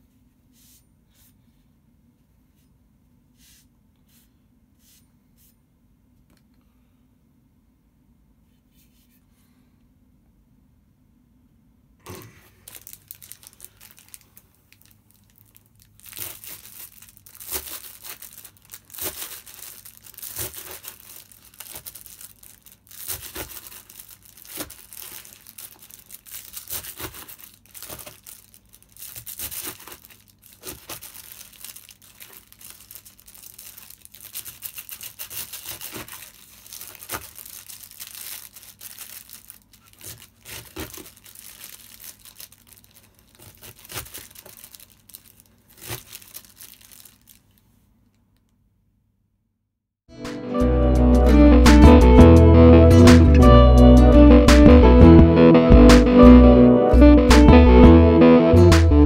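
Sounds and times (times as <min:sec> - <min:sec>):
plastic wrap crinkling: 0:12.1 - 0:48.5
hatchet chopping cabbage: 0:20.2 - 0:21.0, 0:23.0 - 0:23.7, 0:26.6 - 0:28.1.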